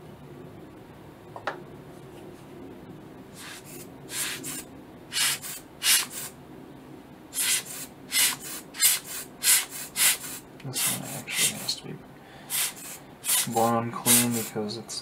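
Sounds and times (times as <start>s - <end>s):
air blower puffs: 3.3s - 6.4s, 7.3s - 14.7s.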